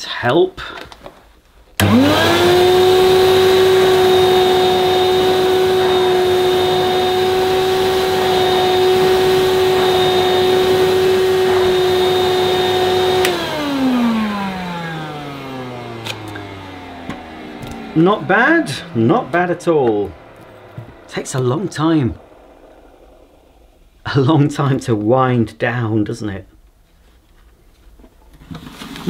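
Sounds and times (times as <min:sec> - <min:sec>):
nozzle pushed over carpet: 0:01.8 - 0:23.3
vacuum cleaner whining: 0:01.8 - 0:25.1.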